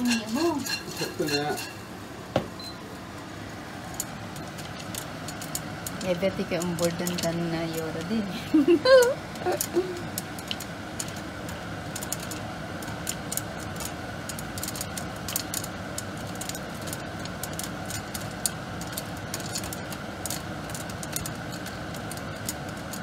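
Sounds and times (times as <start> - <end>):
popcorn popping: 0.0 - 23.0
steady background hiss: 0.0 - 23.0.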